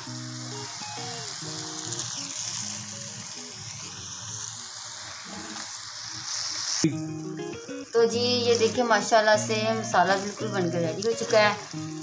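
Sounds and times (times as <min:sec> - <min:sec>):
masala sizzling in a pan: 0:00.0 - 0:12.0
background music: 0:06.8 - 0:12.0.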